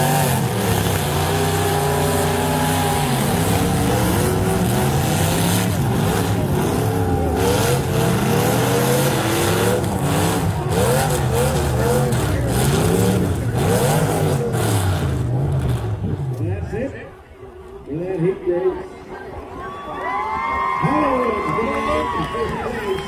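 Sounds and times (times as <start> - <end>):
car engines revving: 0.0 - 17.2.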